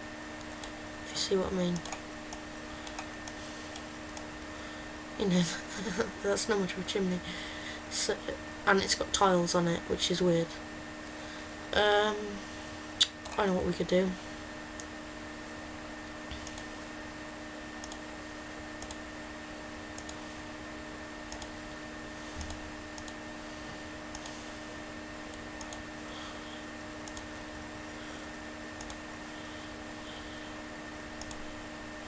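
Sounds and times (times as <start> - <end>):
steady hum: 0.0 - 32.0
computer mouse clicking: 1.8 - 4.3, 16.4 - 16.7, 17.8 - 18.0, 18.8 - 19.0, 20.0 - 20.2, 21.3 - 21.6, 22.4 - 23.2, 24.1 - 24.4, 25.3 - 25.8, 27.0 - 27.4, 28.8 - 29.0, 31.2 - 31.4.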